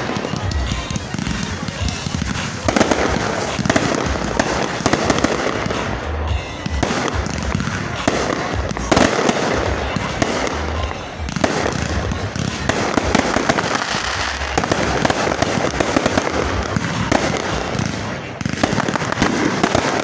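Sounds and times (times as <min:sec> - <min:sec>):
fireworks crackling: 0:00.0 - 0:20.0.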